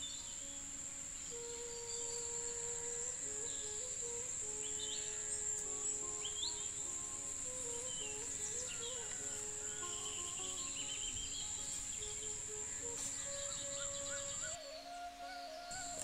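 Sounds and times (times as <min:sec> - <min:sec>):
high-pitched insect drone: 0:00.0 - 0:16.0
soft background music: 0:00.1 - 0:16.0
bird chirps: 0:04.7 - 0:14.9.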